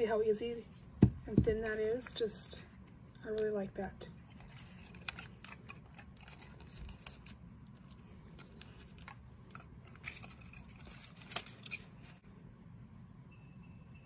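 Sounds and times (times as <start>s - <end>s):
paper rustling and crinkling: 4.2s - 12.2s.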